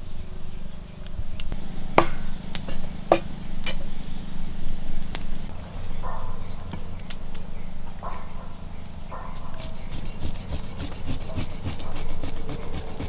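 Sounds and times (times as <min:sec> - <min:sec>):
blade scraping fish scales: 0:09.5 - 0:13.0.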